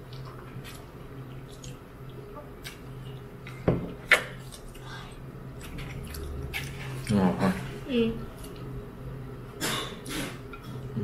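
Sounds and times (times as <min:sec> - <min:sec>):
person chewing: 0:00.0 - 0:08.8
low steady hum: 0:00.0 - 0:11.0.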